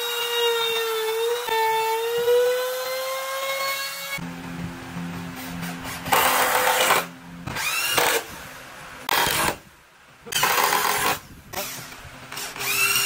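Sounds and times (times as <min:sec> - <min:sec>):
power drill driving screws into wood: 0:06.0 - 0:08.3, 0:09.1 - 0:09.6, 0:10.3 - 0:13.0.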